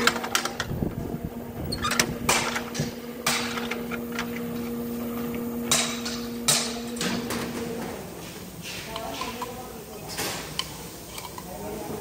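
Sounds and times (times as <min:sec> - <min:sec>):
low machine hum: 0:00.0 - 0:10.1.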